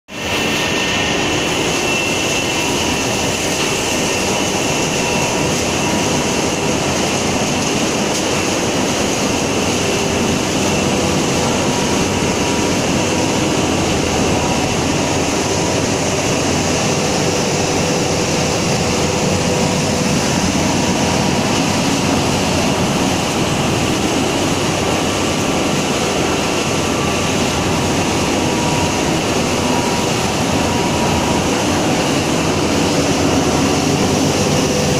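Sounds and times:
loud machine drone: 0.1s - 34.9s
faint machine whines: 0.2s - 34.9s.

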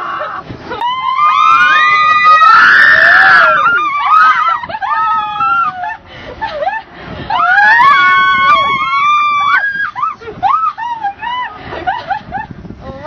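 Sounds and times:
riders screaming: 0.0s - 6.0s, 7.3s - 11.5s.

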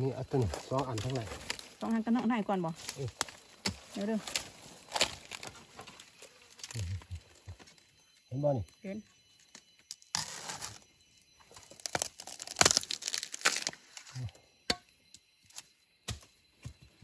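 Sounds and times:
leaves rustling: 0.0s - 8.0s, 11.5s - 14.2s
plant stems tearing and snapping: 2.8s - 5.5s, 11.6s - 14.1s.

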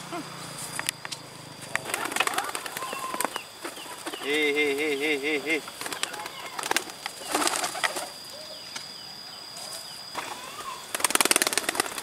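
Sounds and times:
pigeon wings flapping: 1.6s - 4.5s, 5.6s - 8.2s, 10.9s - 12.0s.

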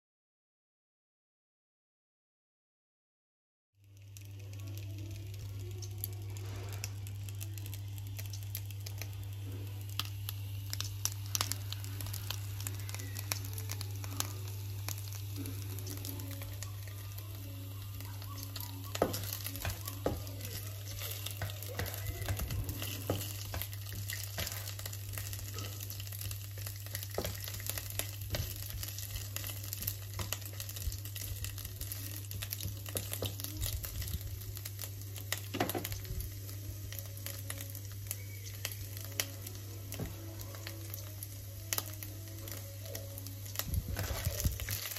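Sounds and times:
sizzling and crackling in oil: 3.8s - 44.9s
steady low hum: 4.3s - 44.8s
spatula stirring: 18.0s - 34.0s.

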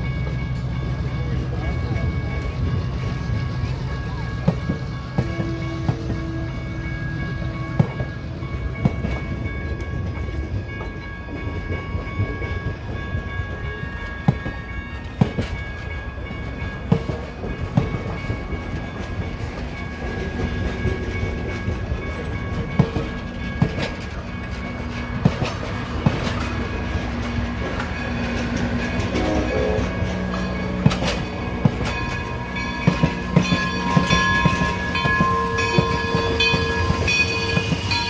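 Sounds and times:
train cars rolling past: 0.0s - 38.0s
wheels clicking over rail joints: 7.7s - 38.0s.

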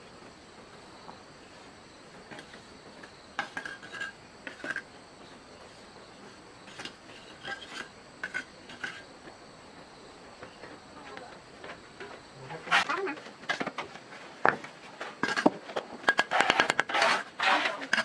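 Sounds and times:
faint high insect drone: 0.0s - 18.0s
hard objects clinking and scraping: 3.4s - 5.0s, 6.7s - 9.1s, 15.2s - 18.0s.

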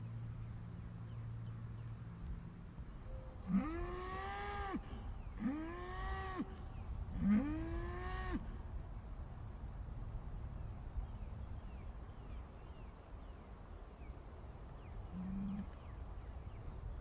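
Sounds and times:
cow mooing: 3.4s - 6.5s, 7.2s - 8.4s.

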